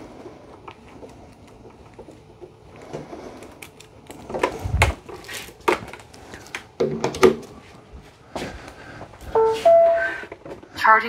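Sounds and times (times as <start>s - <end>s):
short electronic tone: 9.4s - 10.3s.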